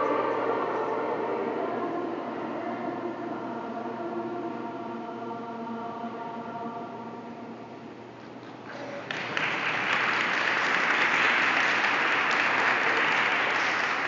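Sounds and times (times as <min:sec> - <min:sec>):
children's choir chord: 0:00.0 - 0:07.6
applause: 0:08.4 - 0:14.0.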